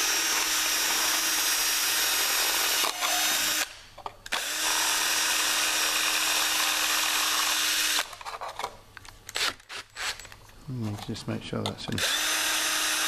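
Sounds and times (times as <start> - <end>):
cordless drill drilling plastic: 0.0 - 3.7, 4.3 - 8.1, 12.0 - 13.0.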